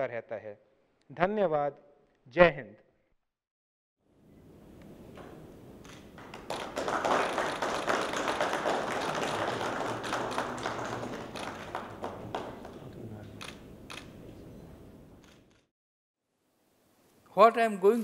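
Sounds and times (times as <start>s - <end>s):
audience applauding: 6.2s - 13.2s.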